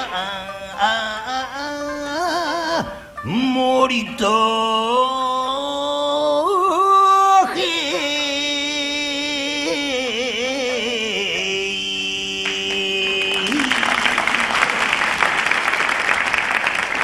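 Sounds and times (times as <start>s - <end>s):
singer with wavering vibrato: 0.0s - 15.4s
audience applauding: 12.4s - 17.0s.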